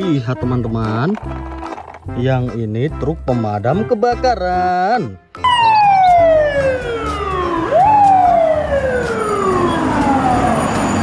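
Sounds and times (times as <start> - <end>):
fire truck siren wailing: 5.4 - 11.0.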